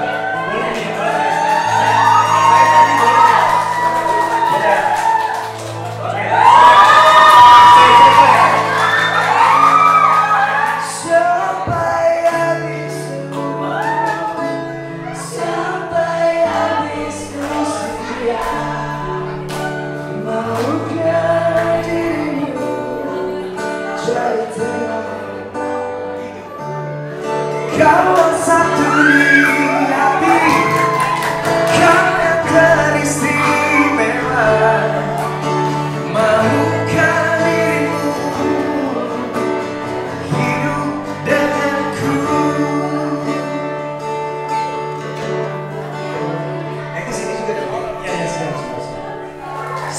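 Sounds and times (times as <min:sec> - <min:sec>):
acoustic guitar: 0:00.0 - 0:49.9
men singing into microphones: 0:10.8 - 0:14.1, 0:15.0 - 0:19.4, 0:20.1 - 0:23.2, 0:27.6 - 0:43.8.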